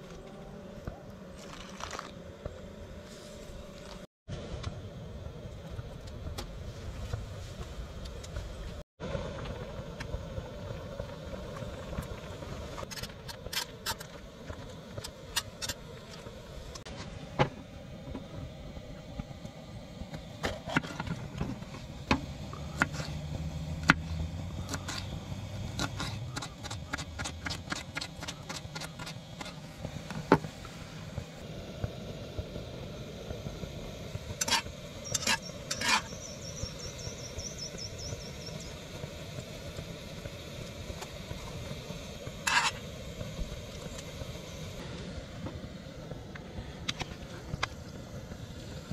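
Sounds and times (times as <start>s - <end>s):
gas stove hissing: 3.4s - 48.9s.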